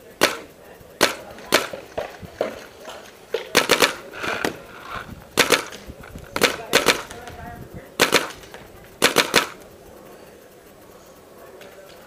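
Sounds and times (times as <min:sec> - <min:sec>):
paintball markers firing: 0:00.2 - 0:09.7.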